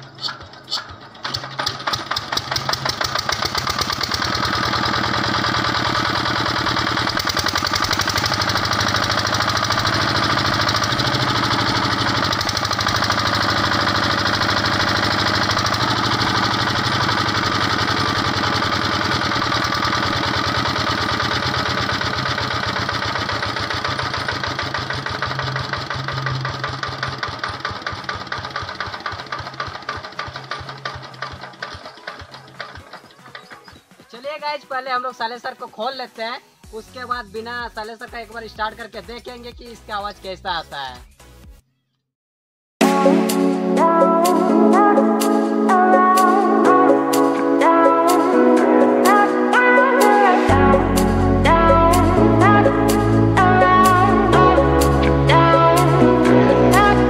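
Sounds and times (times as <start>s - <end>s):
diesel generator engine running: 0.0s - 33.9s, 50.4s - 57.0s.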